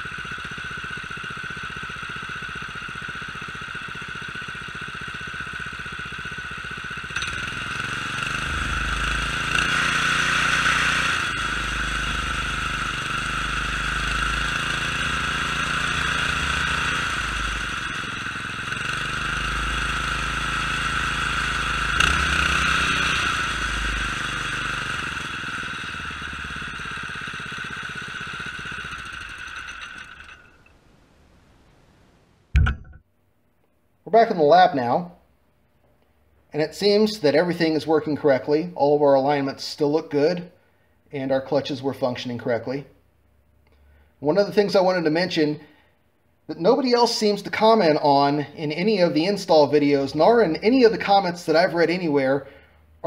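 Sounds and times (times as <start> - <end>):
small engine idling and revving: 0.0 - 30.8, 46.6 - 53.0.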